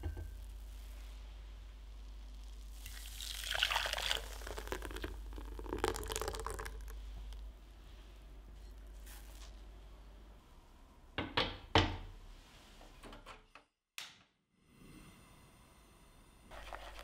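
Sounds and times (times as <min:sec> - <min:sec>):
liquid pouring into a saucepan: 0:02.4 - 0:07.1.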